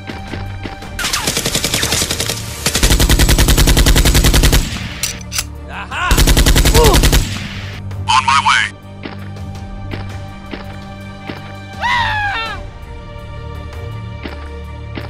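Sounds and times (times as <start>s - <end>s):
background music: 0.0s - 15.0s
machine-gun fire: 1.0s - 5.1s, 6.1s - 7.8s.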